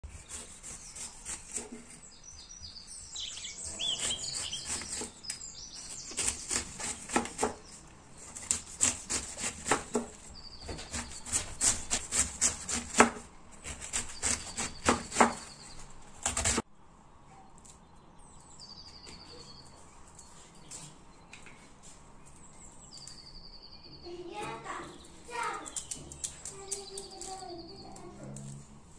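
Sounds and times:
knife slicing through cabbage: 0.0s - 2.0s, 5.9s - 16.6s.

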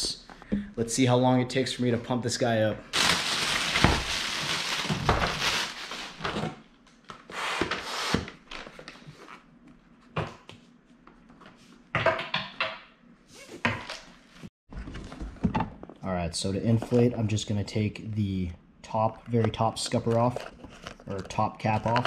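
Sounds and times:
plastic wrapping crinkling: 3.0s - 6.3s.

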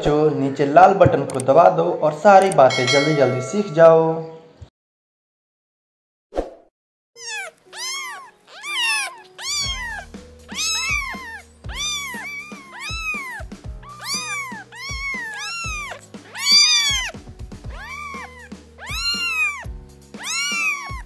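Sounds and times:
cat meowing: 7.2s - 21.0s
background music with beat: 12.9s - 21.0s.

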